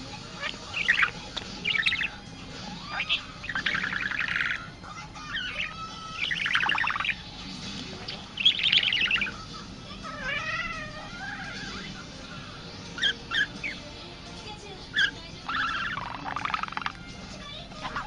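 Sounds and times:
budgerigar chattering and warbling: 0:00.1 - 0:07.3, 0:08.0 - 0:14.0, 0:14.8 - 0:18.0.

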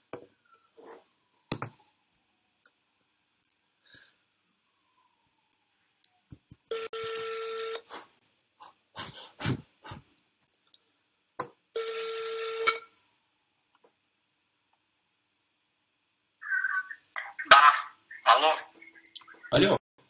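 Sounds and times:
telephone ringback tone: 0:06.7 - 0:07.8, 0:11.8 - 0:12.8.

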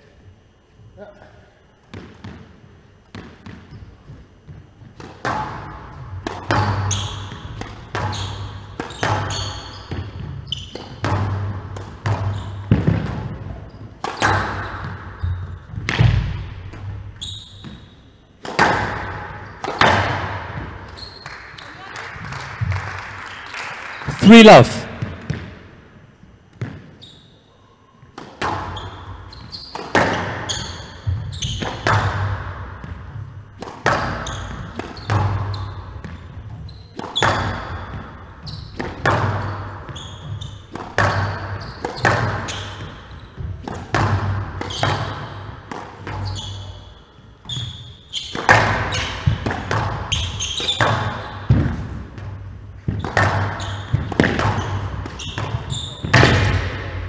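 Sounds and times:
squash ball cracking off walls: 0:04.4 - 0:17.0, 0:18.4 - 0:21.4, 0:29.5 - 0:36.3, 0:37.0 - 0:46.3, 0:48.3 - 0:57.0
shoe squeaks on wooden floor: 0:06.5 - 0:11.1, 0:12.1 - 0:12.8, 0:13.6 - 0:15.8, 0:17.1 - 0:18.2, 0:19.3 - 0:19.9, 0:20.9 - 0:21.8, 0:26.9 - 0:27.6, 0:28.7 - 0:32.0, 0:33.9 - 0:43.6, 0:44.6 - 0:49.4, 0:50.1 - 0:51.6, 0:52.8 - 0:56.6.

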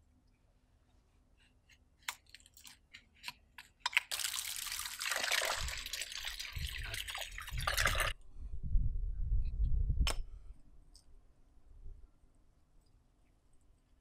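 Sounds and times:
water splashing in a plastic bucket: 0:04.0 - 0:08.2.

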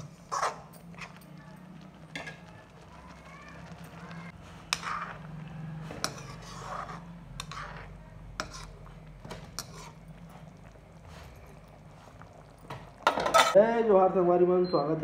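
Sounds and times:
metal spoon clinking on pot: 0:02.1 - 0:02.5, 0:06.0 - 0:06.5.

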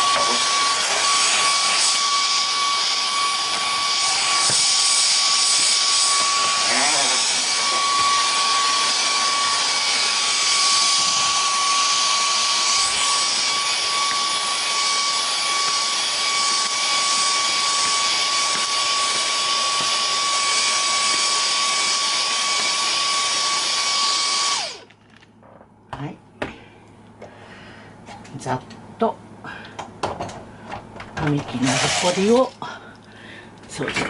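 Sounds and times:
vacuum cleaner whining: 0:00.0 - 0:24.9, 0:30.6 - 0:32.7.

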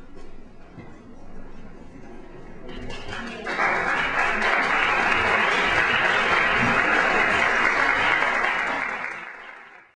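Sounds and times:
audience applauding: 0:03.1 - 0:10.0.

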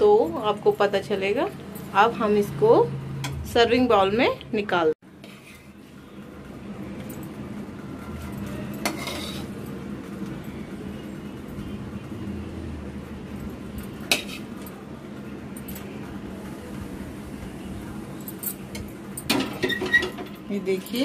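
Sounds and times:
spoon serving food from pan: 0:08.8 - 0:09.6.

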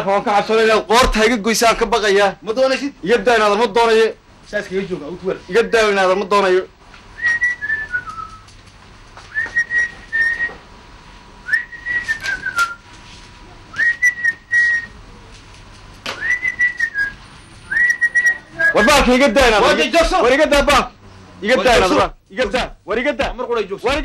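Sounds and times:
person whistling: 0:07.2 - 0:08.4, 0:09.3 - 0:10.6, 0:11.5 - 0:12.8, 0:13.8 - 0:14.9, 0:16.2 - 0:18.9.

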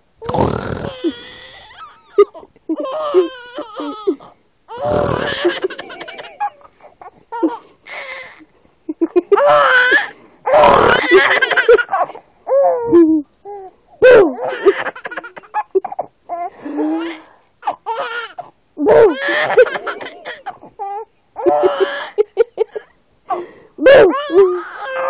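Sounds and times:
baby giggling: 0:00.9 - 0:06.8, 0:10.9 - 0:13.1, 0:17.9 - 0:20.6.

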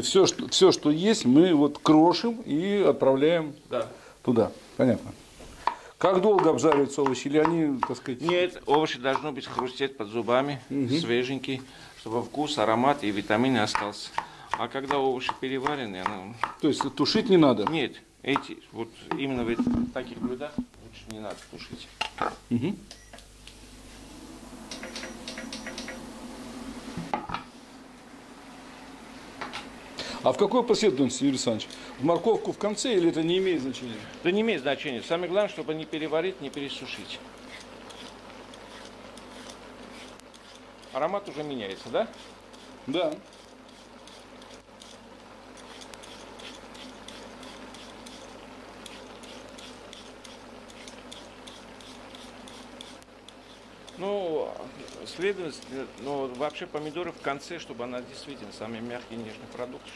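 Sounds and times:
vegetables frying crackles: 0:00.0 - 0:59.9
low steady hum: 0:15.6 - 0:49.6
utensil scraping pan: 0:19.1 - 0:20.7, 0:37.4 - 0:57.8
low hum: 0:23.5 - 0:30.3.

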